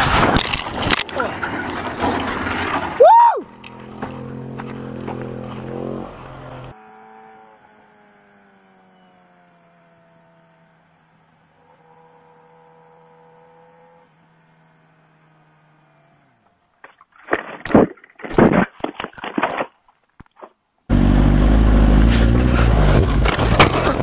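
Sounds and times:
motorcycle crashing: 0:00.0 - 0:06.7, 0:16.8 - 0:19.7, 0:22.0 - 0:24.0
motorcycle engine running: 0:03.5 - 0:11.2, 0:20.9 - 0:24.0.

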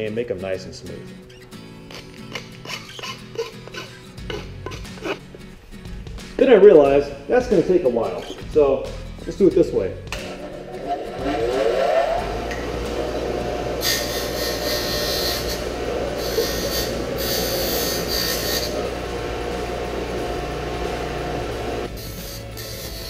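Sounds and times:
pipe grinding against wheel: 0:01.3 - 0:05.3, 0:10.1 - 0:23.0
bench grinder motor whine: 0:10.3 - 0:23.0.

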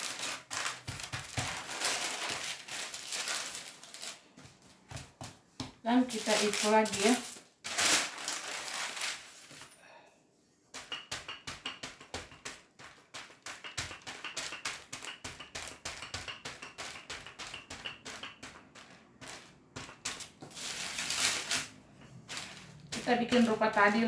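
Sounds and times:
paper rustling: 0:00.0 - 0:04.6, 0:06.1 - 0:09.7, 0:18.8 - 0:24.0
rolling pin clicking and tapping: 0:10.7 - 0:20.6.

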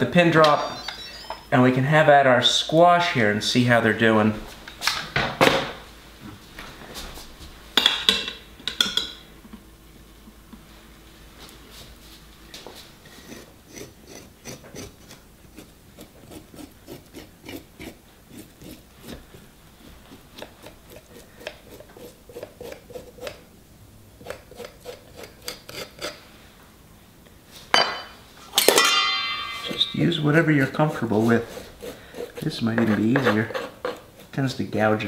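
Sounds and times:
utensil scraping squash skin: 0:13.0 - 0:23.4, 0:24.2 - 0:26.2, 0:29.7 - 0:35.0.

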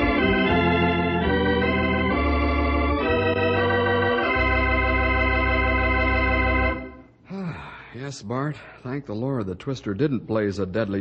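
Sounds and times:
organ chords: 0:00.0 - 0:07.2.

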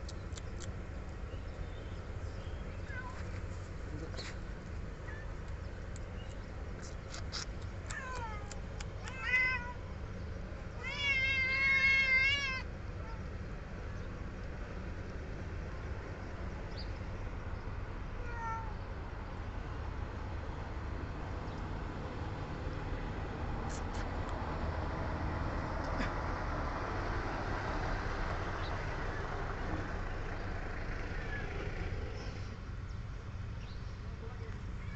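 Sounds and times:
kittens meowing: 0:07.3 - 0:09.8, 0:10.8 - 0:13.3.

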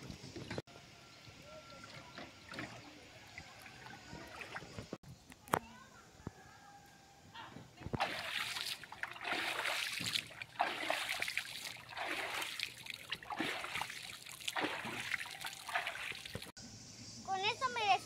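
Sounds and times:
river water splashing: 0:01.8 - 0:05.0, 0:08.0 - 0:16.5.

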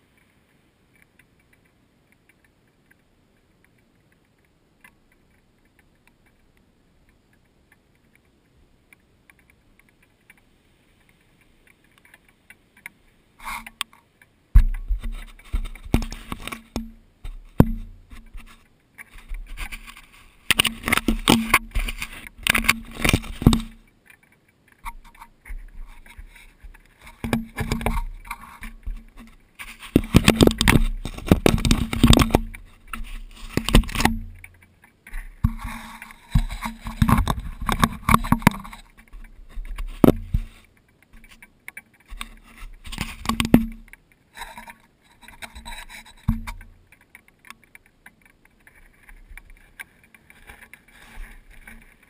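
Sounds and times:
animal rubbing against camera: 0:14.8 - 0:23.8, 0:24.8 - 0:34.5, 0:35.1 - 0:41.4, 0:42.0 - 0:43.6, 0:44.3 - 0:46.7.

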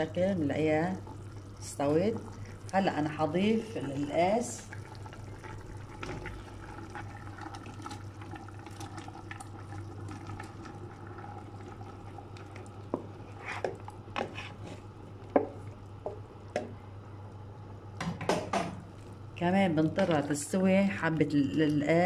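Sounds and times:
steady low hum: 0:00.0 - 0:22.0
wooden spatula knocking and scraping: 0:12.9 - 0:16.7.

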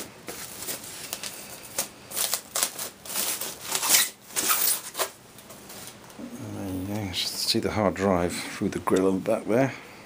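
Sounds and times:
plastic foam bag rustling: 0:00.0 - 0:07.6.

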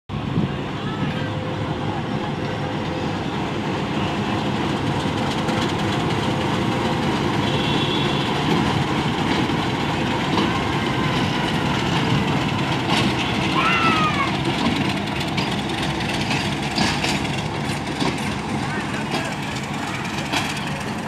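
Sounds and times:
diesel locomotives rumbling: 0:00.1 - 0:21.0.

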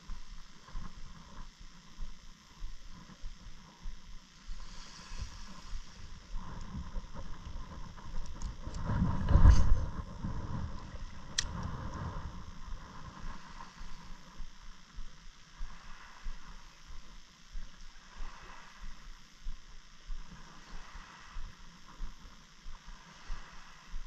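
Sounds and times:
heavy low rumble: 0:02.6 - 0:17.7.

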